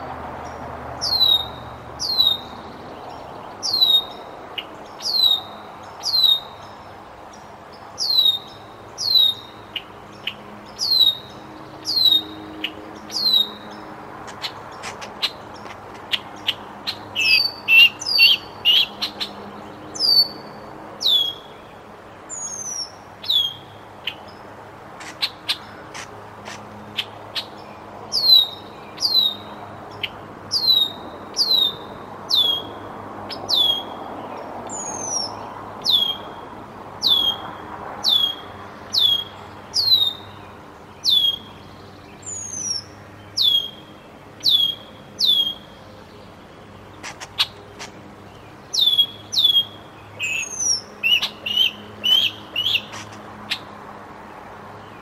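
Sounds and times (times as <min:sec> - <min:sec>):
blackbird alarm calls: 0:00.4 - 0:02.6, 0:03.6 - 0:06.8, 0:08.0 - 0:13.7, 0:14.3 - 0:21.5, 0:25.0 - 0:34.0, 0:37.0 - 0:37.4, 0:38.0 - 0:40.4, 0:42.2 - 0:45.8, 0:47.0 - 0:48.0, 0:48.7 - 0:53.7
bird chatter: 0:07.4 - 0:21.5, 0:25.0 - 0:32.7, 0:38.0 - 0:53.8.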